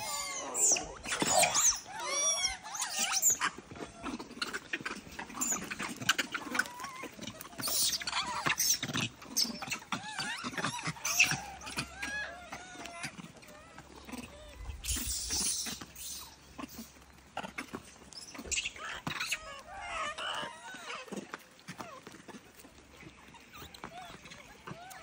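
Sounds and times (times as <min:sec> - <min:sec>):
monkeys squealing: 0:00.0 - 0:25.0.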